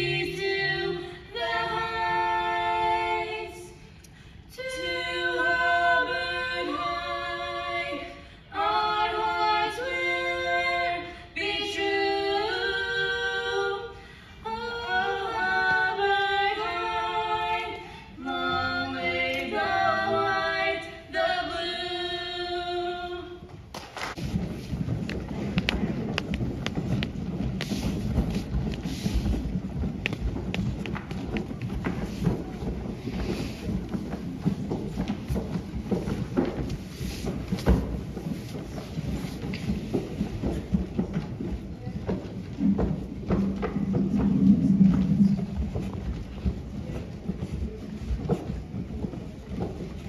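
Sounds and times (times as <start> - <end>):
woman singing unaccompanied: 0.0 - 3.9, 4.5 - 23.5
low rumbling noise: 24.1 - 50.0.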